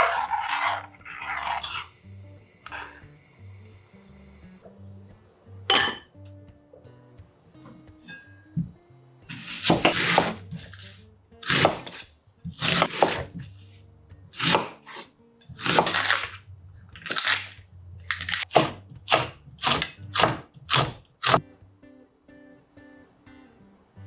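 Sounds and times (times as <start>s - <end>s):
soft background music: 0.0s - 24.0s
knife slicing chilies: 9.3s - 13.4s, 14.3s - 16.4s, 17.0s - 21.4s
knife cutting onion on wooden board: 9.3s - 13.5s, 14.3s - 16.4s, 17.0s - 21.4s.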